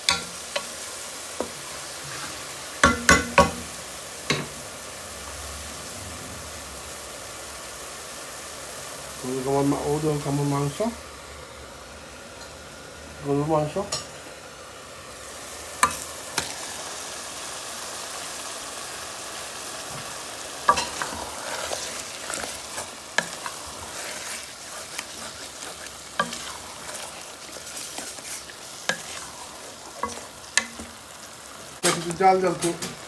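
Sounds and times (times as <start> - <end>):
meat sizzling in hot oil: 0.0 - 33.0
wooden spoon knocking on pot: 2.8 - 3.6, 30.0 - 30.9.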